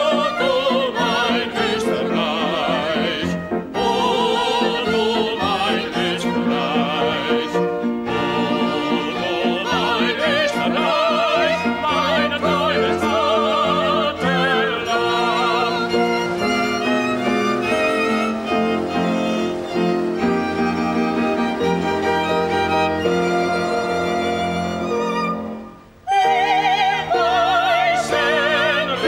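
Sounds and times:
man and woman singing duet: 0.0 - 20.0, 26.1 - 29.0
orchestral backing with strings: 0.0 - 29.0.

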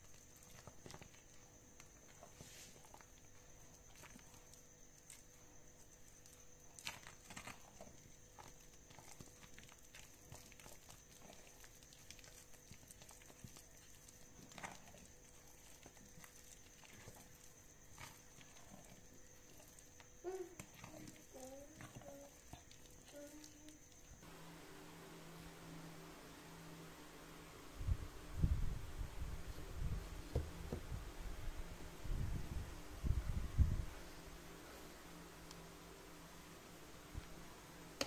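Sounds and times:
sticky squelches of stirred paste: 0.0 - 24.3.

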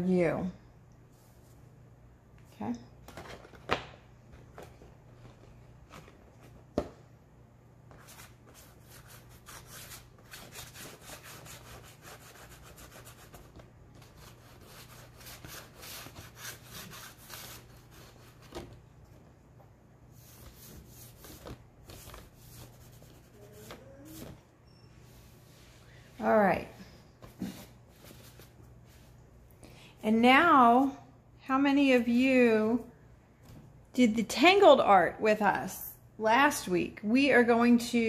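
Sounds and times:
chalk rubbing on board: 8.0 - 18.4, 22.0 - 24.2.

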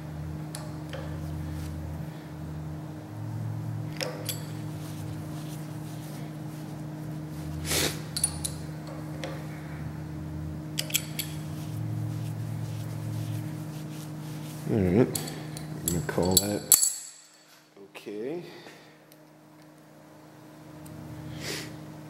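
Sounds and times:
steady low hum: 0.0 - 22.0
metallic clicks and clinks: 4.0 - 4.6, 8.1 - 9.0, 10.8 - 11.4, 15.1 - 17.5.

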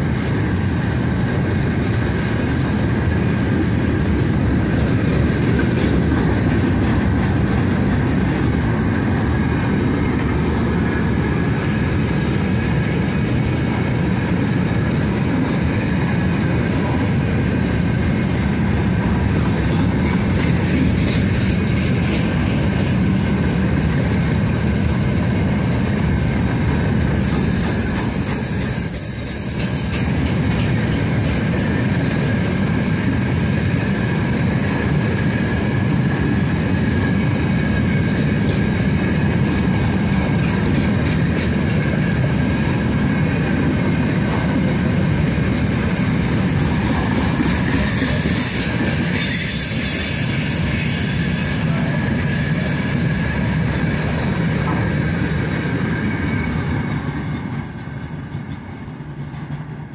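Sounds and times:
train wheels rumbling on rails: 0.0 - 59.9
thin wheel squeal: 47.4 - 51.8.

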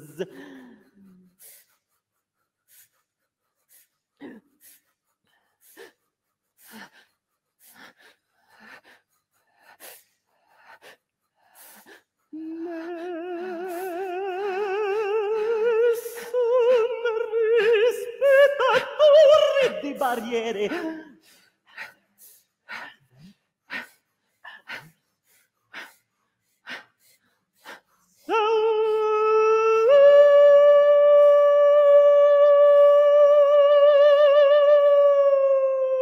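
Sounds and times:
mouth clicks and breaths: 0.2 - 12.9, 19.6 - 28.3
woman's wavering vocal note: 12.4 - 21.1.

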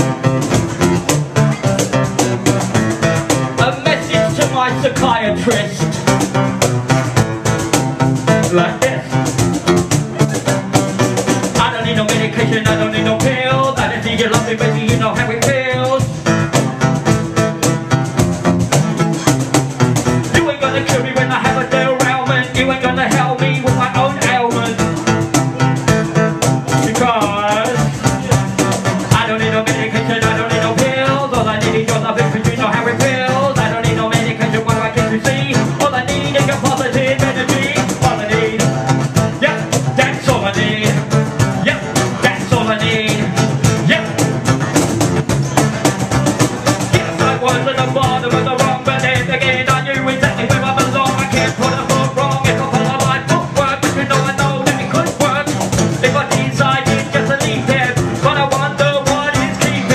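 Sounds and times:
guitar playing: 0.0 - 59.9
quick percussive beat: 0.0 - 59.9
person singing: 11.5 - 16.7, 20.2 - 25.0, 26.8 - 44.4, 46.8 - 59.9.

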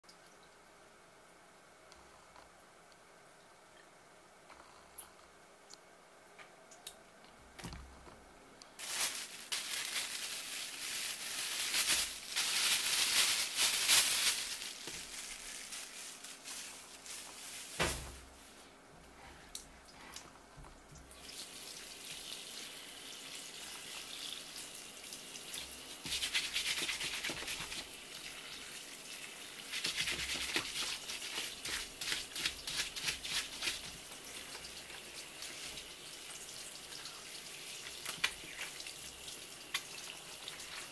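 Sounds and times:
tap water running and splashing: 20.2 - 40.9.

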